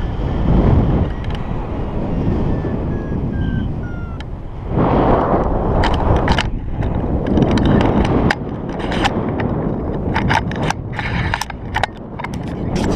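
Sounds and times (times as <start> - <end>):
wind buffeting microphone: 0.0 - 12.9
sharp clicks and crackles: 5.2 - 12.9.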